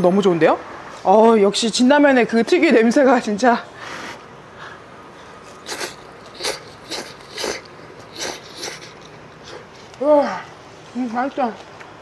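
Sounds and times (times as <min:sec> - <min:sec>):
person slurping noodles: 0:05.5 - 0:09.7.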